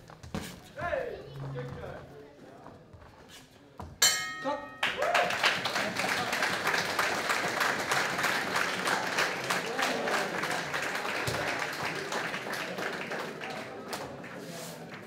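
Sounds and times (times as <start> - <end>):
audience applause: 4.8 - 15.0.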